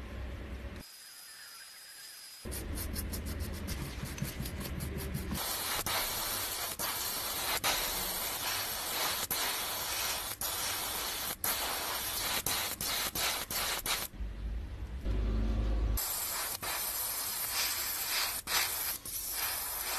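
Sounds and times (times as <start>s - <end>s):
spray gun hissing: 5.3s - 14.1s, 16.0s - 19.9s.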